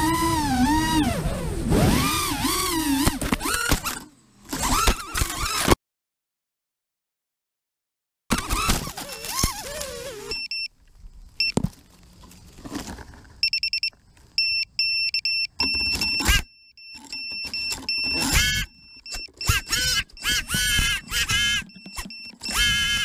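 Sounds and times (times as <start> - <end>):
propellers beating against leaves: 0.0 - 5.5, 8.3 - 13.5
drone motors whirring: 0.0 - 5.8, 8.3 - 10.6, 15.6 - 23.0
high beeps: 13.4 - 20.5.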